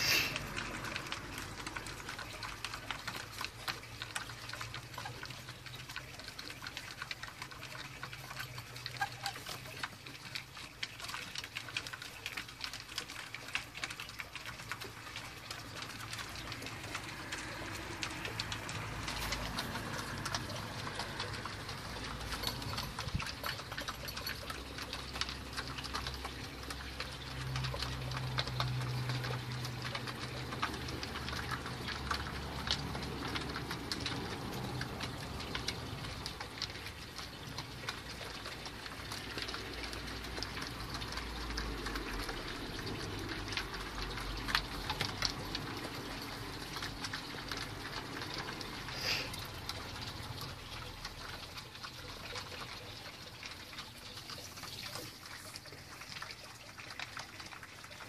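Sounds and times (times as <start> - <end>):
pigeons pecking grain: 0.0 - 58.0.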